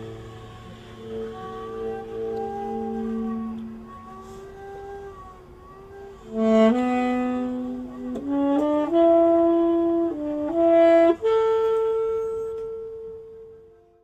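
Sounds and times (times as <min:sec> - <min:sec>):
slow melody of held notes: 0:00.0 - 0:14.0.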